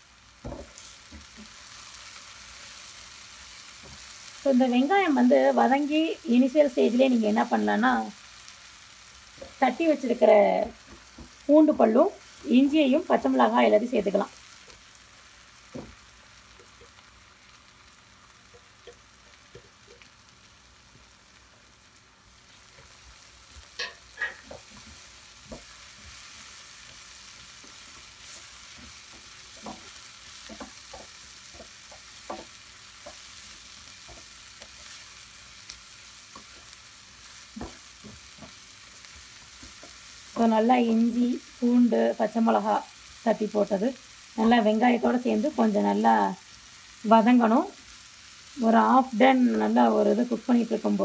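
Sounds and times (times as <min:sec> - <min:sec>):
onions sizzling in oil: 0:00.0 - 0:51.0
spatula tapping and scraping pan: 0:23.6 - 0:35.2, 0:36.3 - 0:40.5.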